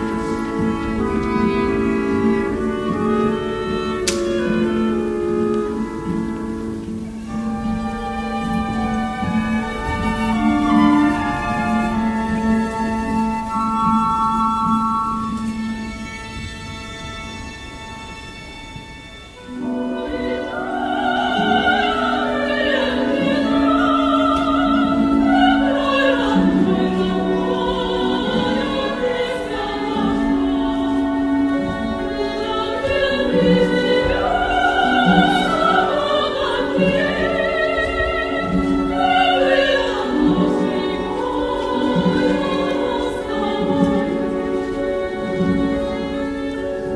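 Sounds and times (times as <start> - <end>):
orchestra playing: 0.0 - 46.9
operatic voice singing: 20.0 - 46.9.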